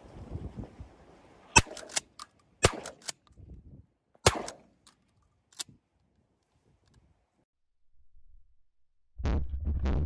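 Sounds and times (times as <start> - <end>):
shotgun shots: 1.6 - 3.1, 4.2 - 4.7.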